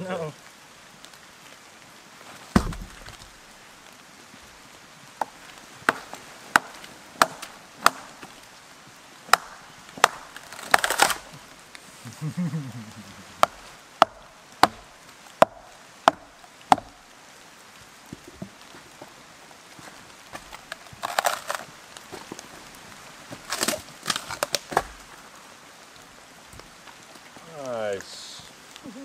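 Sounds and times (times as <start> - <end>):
axe chopping into wood: 2.5 - 3.2, 5.8 - 8.1, 9.3 - 11.2, 13.4 - 17.0
heavy wooden thud: 2.5 - 3.2.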